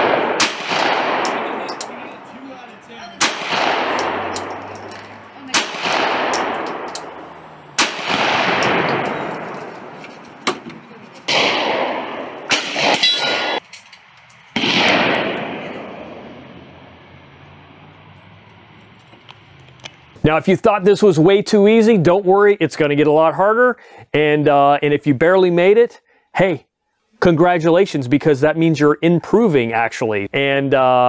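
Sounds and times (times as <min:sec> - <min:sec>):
pistol shots with long echo: 0:00.0 - 0:10.0, 0:11.3 - 0:13.6, 0:14.6 - 0:16.9
light metallic clinks: 0:01.2 - 0:02.0, 0:04.0 - 0:05.2, 0:06.3 - 0:07.4, 0:08.6 - 0:10.3.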